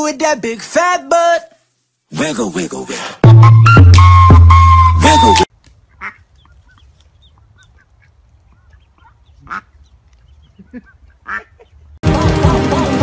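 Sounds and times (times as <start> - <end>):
adult bird calls: 5.8 - 11.9
chicks peeping softly: 5.9 - 12.0.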